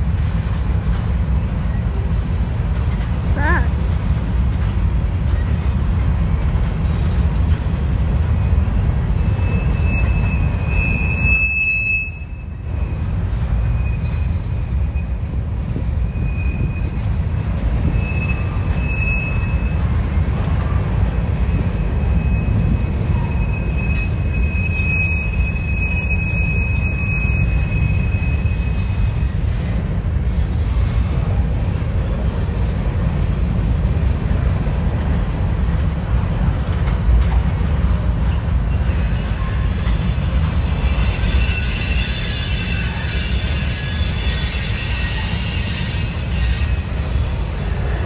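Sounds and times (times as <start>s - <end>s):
train wheels rumbling on rail: 0.0s - 48.0s
high-pitched wheel squeal: 9.2s - 12.6s, 16.0s - 17.1s, 17.8s - 19.9s, 21.5s - 29.4s, 38.6s - 48.0s.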